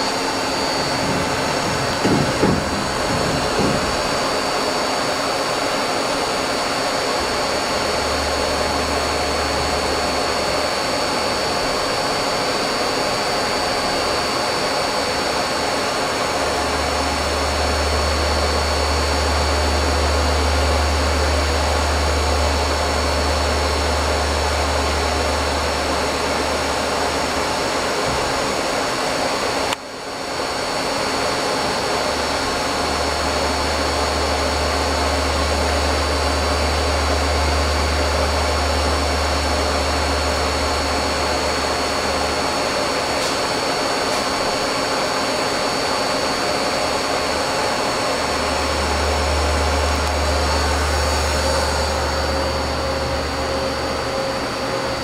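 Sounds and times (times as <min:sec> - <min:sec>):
machining center running: 0:00.0 - 0:55.0.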